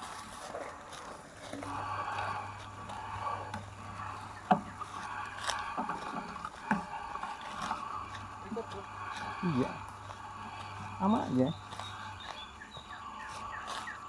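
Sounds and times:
footsteps on dry leaves: 0.0 - 14.0.

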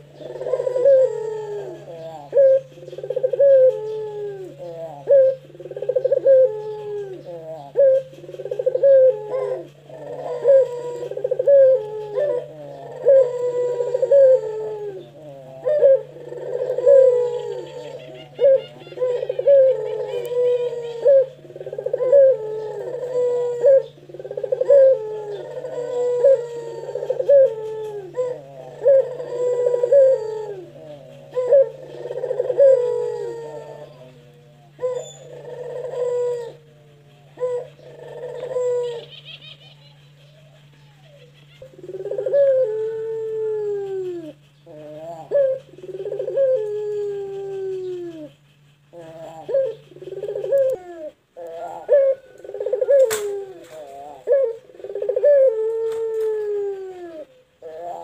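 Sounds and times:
dove cooing with trill: 0.0 - 58.0
steady low hum: 0.0 - 58.0.

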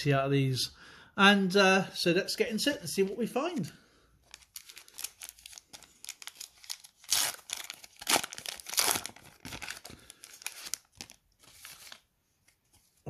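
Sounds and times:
plastic wrapper crinkling and tearing: 4.2 - 12.1.

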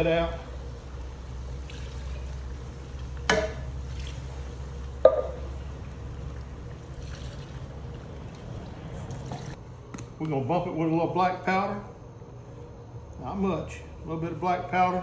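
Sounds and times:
steady low hum: 0.0 - 15.0
sharp knocks: 5.0 - 5.4
broth pouring into a tin can: 6.0 - 9.5.

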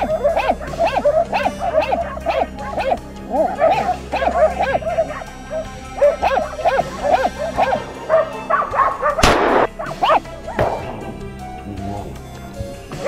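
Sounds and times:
dogs barking rapidly: 0.0 - 12.3
sharp crack: 9.1 - 11.4.

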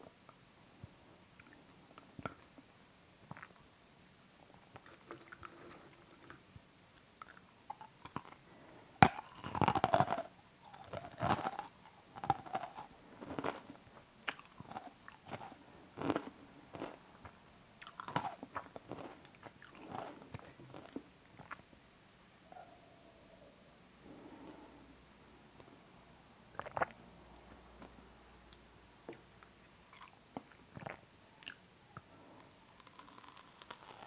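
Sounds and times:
crunchy chewing: 7.2 - 8.4, 9.0 - 17.0, 17.8 - 21.6, 32.7 - 34.0.

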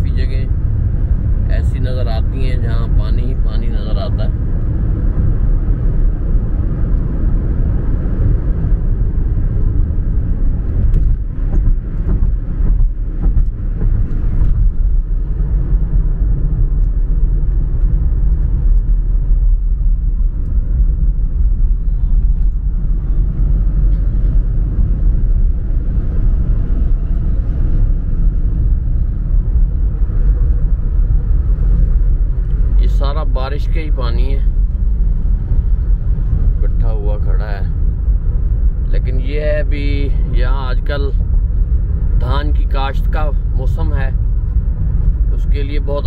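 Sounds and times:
car driving on highway: 0.0 - 46.0.

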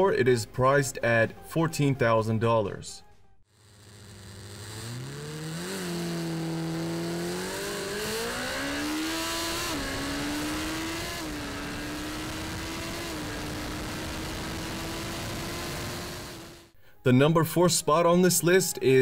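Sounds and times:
motorcycle engine accelerating hard: 3.5 - 16.8.

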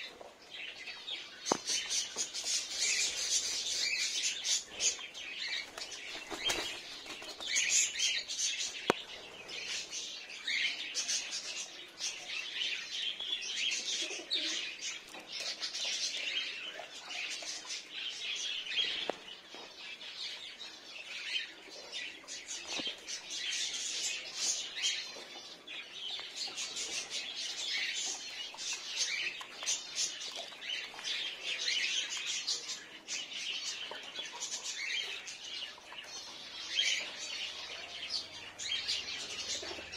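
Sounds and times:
small birds chirping: 0.0 - 39.9
wing flapping: 5.7 - 7.6.

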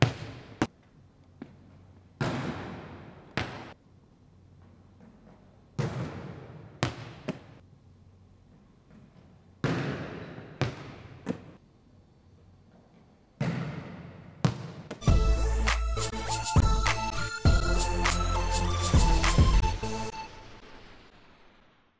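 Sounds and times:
hand smacking volleyball: 2.2 - 3.8, 5.0 - 7.6, 8.9 - 11.5
ball bouncing on wooden floor: 13.4 - 15.0.

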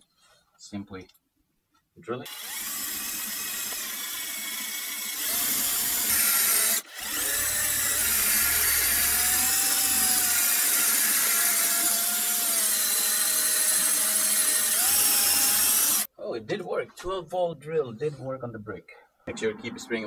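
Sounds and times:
cordless drill boring into brick: 2.3 - 16.1.

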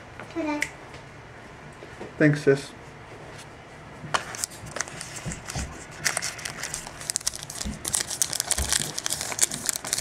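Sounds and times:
foil wrapper crinkling: 4.3 - 10.0.

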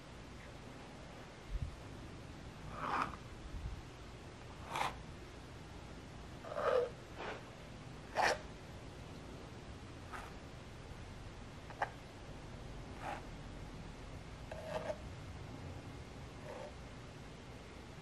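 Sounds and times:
palette knife scraping paint on canvas: 2.7 - 3.2, 4.6 - 5.0, 6.5 - 7.4, 8.1 - 8.4, 10.1 - 10.4, 13.0 - 13.3, 14.5 - 15.0, 16.5 - 16.8.

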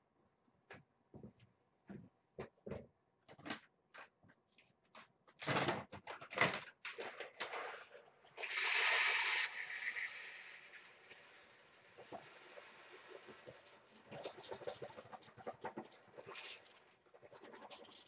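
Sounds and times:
dry cat food pouring into bowl: 8.4 - 14.8.

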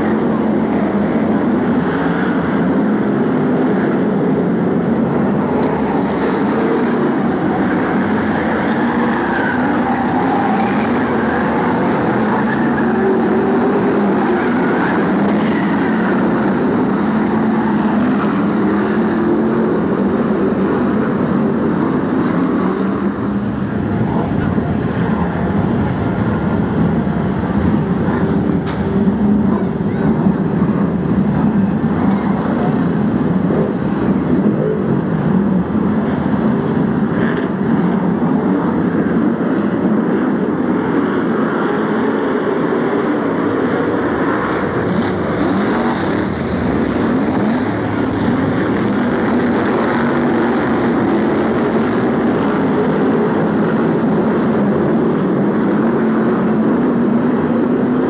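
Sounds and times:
racing car engines: 0.0 - 58.0.

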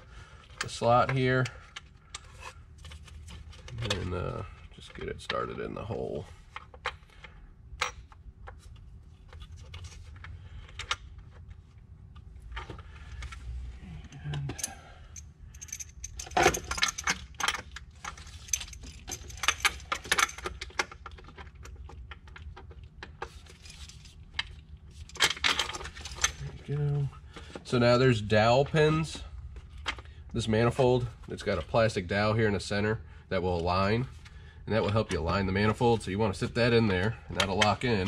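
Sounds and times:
metallic clicks and rattles: 14.3 - 26.5.

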